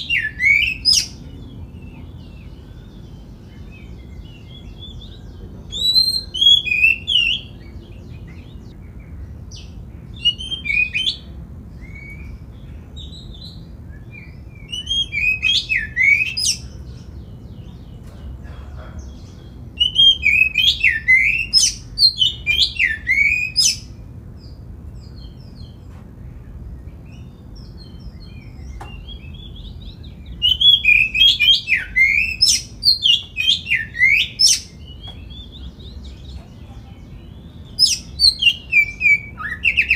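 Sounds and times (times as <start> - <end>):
bird singing whistles and chirps: 0.0 - 17.9, 19.8 - 25.8, 26.8 - 36.4, 37.1 - 39.9
low background rumble: 0.0 - 31.2.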